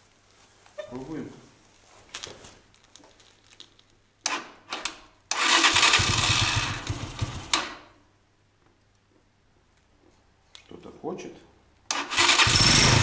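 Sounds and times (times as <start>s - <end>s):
motorcycle engine cranking: 4.3s - 7.8s, 11.9s - 13.0s.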